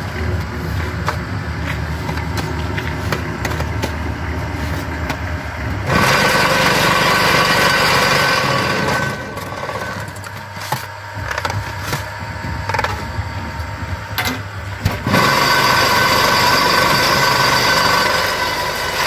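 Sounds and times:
shovel scraping concrete mix: 0:00.0 - 0:12.1
machine humming: 0:00.0 - 0:19.0
rattling vibration: 0:00.0 - 0:19.0.

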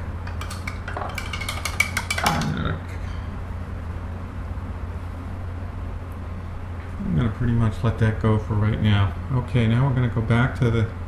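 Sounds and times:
steady low hum: 0:00.0 - 0:11.0
small hard objects clicking: 0:00.3 - 0:02.6.

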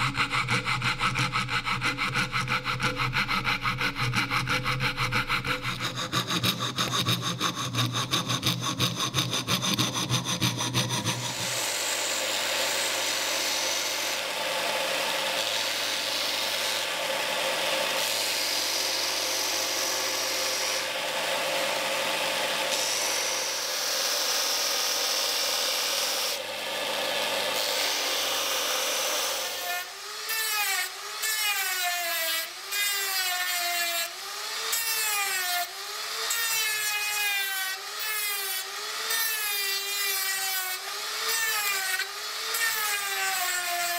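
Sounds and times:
belt sander running: 0:00.0 - 0:30.3
rotary tool whining: 0:00.0 - 0:31.7
coping saw cutting wood: 0:00.0 - 0:43.9.

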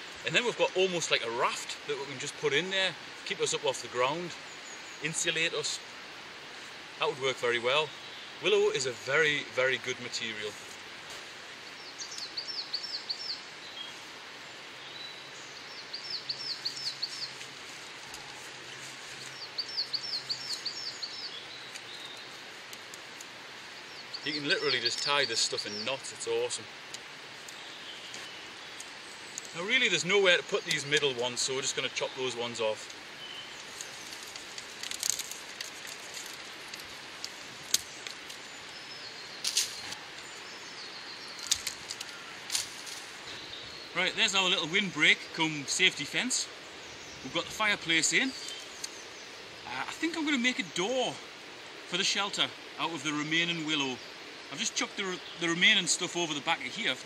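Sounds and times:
outdoor hiss: 0:00.0 - 0:57.0
songbird singing: 0:00.0 - 0:57.0
willow rods clicking and crackling: 0:21.7 - 0:23.3, 0:32.8 - 0:38.5, 0:39.4 - 0:40.4, 0:41.3 - 0:43.2.

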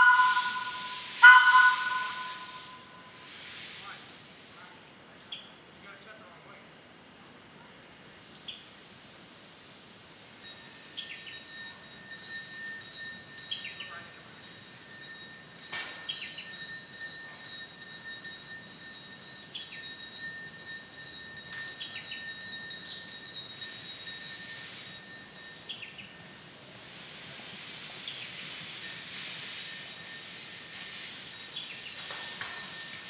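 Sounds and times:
bird chirps: 0:00.0 - 0:03.0
steady high-pitched tones: 0:00.0 - 0:03.3, 0:10.3 - 0:26.7, 0:28.6 - 0:33.0
faint hiss: 0:00.0 - 0:17.8, 0:22.8 - 0:33.0.

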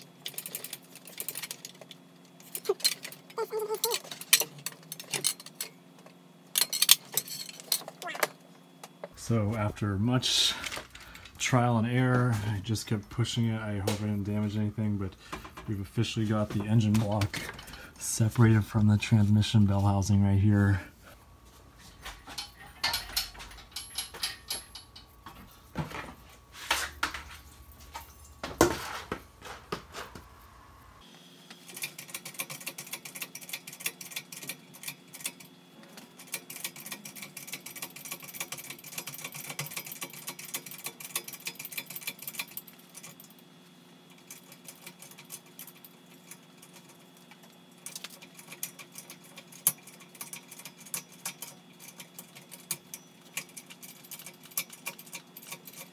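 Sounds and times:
rapid light clicking and rattling: 0:00.0 - 0:08.1, 0:31.7 - 0:55.9
faint steady hum: 0:00.0 - 0:55.9
hand tools clinking on metal: 0:06.6 - 0:08.2, 0:22.2 - 0:25.4.

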